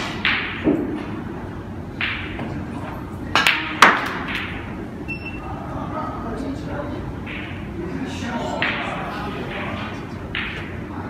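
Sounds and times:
cue tip striking ball: 0:00.0 - 0:01.2, 0:03.3 - 0:04.7
snooker balls colliding: 0:00.0 - 0:01.3, 0:01.9 - 0:04.8, 0:07.2 - 0:07.8, 0:08.4 - 0:11.0.

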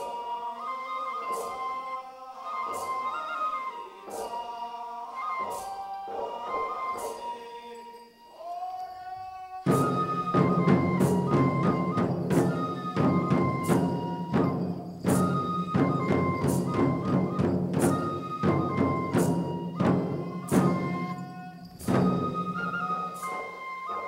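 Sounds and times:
transverse flute melody: 0:00.0 - 0:24.0
taiko drumming: 0:09.6 - 0:23.6.

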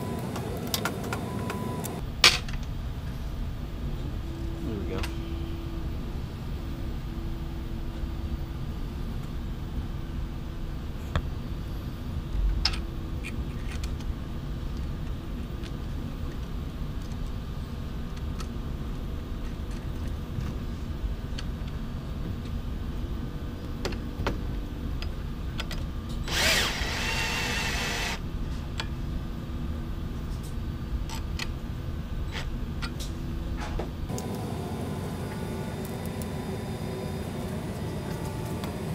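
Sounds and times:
steady low hum: 0:00.0 - 0:38.9
cordless drill running: 0:26.3 - 0:28.2.

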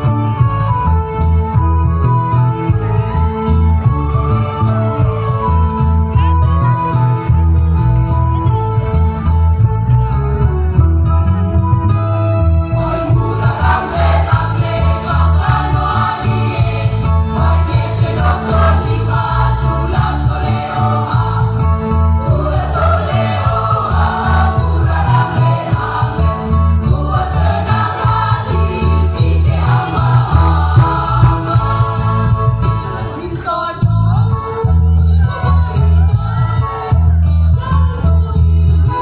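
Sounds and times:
choir singing: 0:12.8 - 0:34.0.

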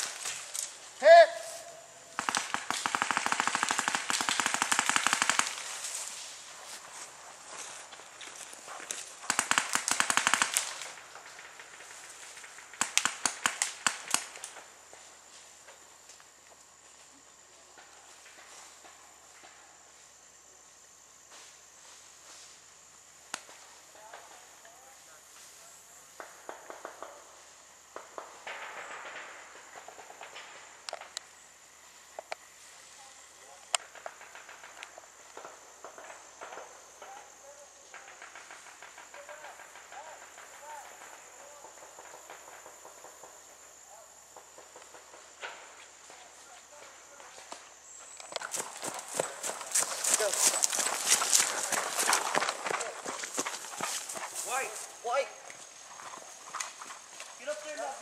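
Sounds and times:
paintball markers firing: 0:02.2 - 0:05.8, 0:09.2 - 0:11.0, 0:12.7 - 0:14.5
footsteps scuffing and knocking: 0:48.4 - 0:55.0.

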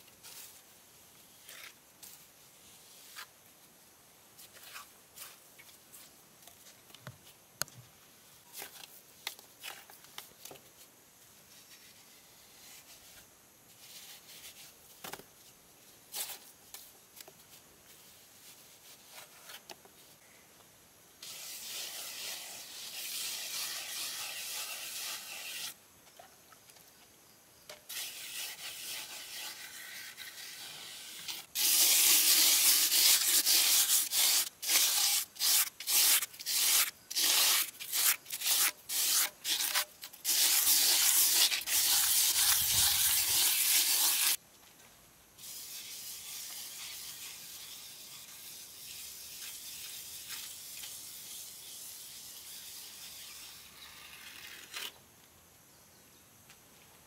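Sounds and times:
pad scraping on cement render: 0:27.9 - 0:44.4.

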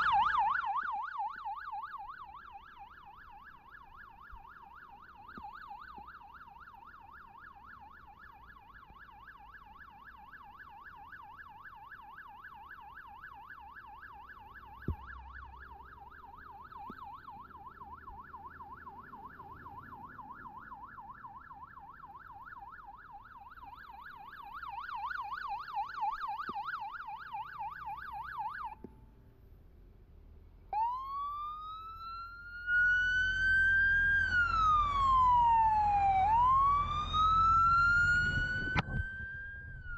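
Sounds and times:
electronic siren yelp: 0:00.0 - 0:28.8, 0:30.8 - 0:39.9
siren slow wail: 0:00.0 - 0:29.0, 0:30.7 - 0:39.9.

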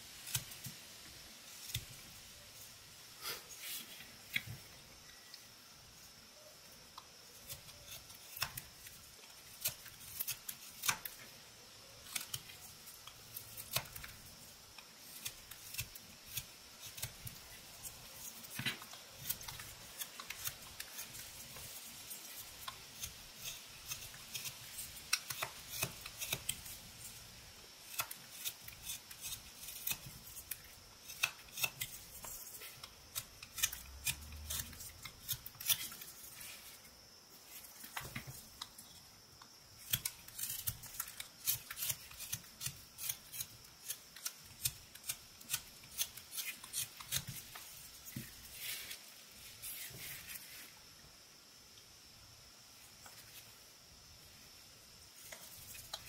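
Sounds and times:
faint steady hiss: 0:00.0 - 0:56.0
knife slicing wood chips: 0:07.3 - 0:11.3, 0:11.9 - 0:27.1, 0:27.8 - 0:36.8, 0:39.8 - 0:50.6.

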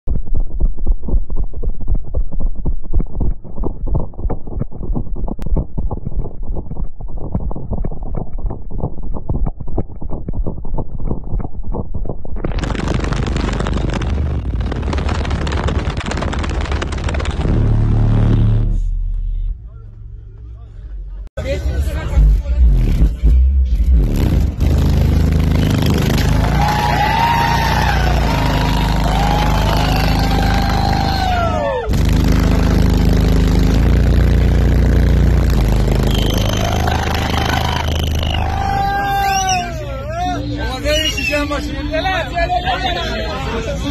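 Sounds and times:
harsh crackling noise: 0:00.1 - 0:18.7
loud distorted bass: 0:03.1 - 0:19.7, 0:21.7 - 0:39.0
falling whistle-like tones: 0:36.0 - 0:39.8, 0:40.8 - 0:41.5.

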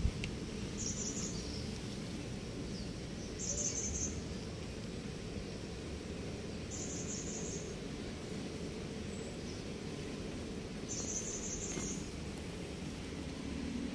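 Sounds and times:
insect buzzing trill: 0:00.6 - 0:01.9, 0:02.6 - 0:04.4, 0:05.0 - 0:12.2.

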